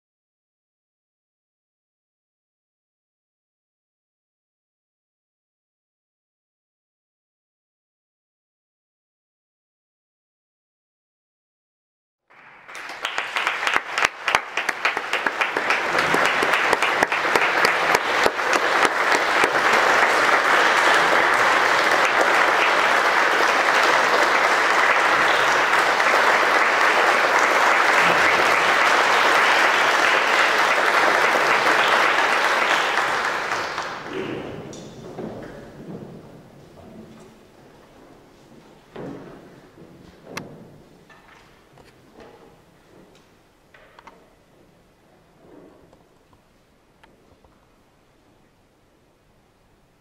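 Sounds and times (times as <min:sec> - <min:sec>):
audience applauding: 0:12.3 - 0:35.0.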